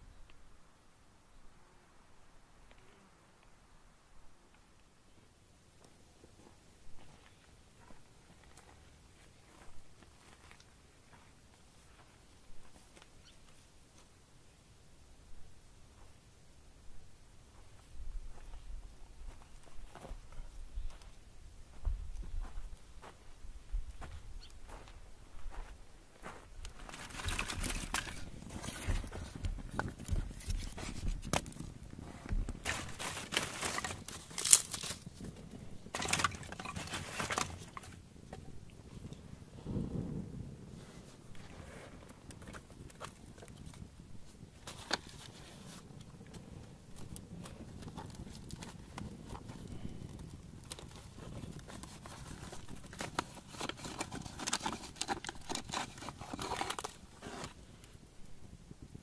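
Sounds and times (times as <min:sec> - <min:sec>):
wood being handled: 0:25.5 - 0:38.4, 0:46.9 - 0:57.6
campfire crackling and popping: 0:26.3 - 0:59.0
wrapper crinkling and rustling: 0:26.8 - 0:29.0, 0:32.6 - 0:35.2, 0:50.6 - 0:57.6
wood snapping: 0:32.6 - 0:35.0.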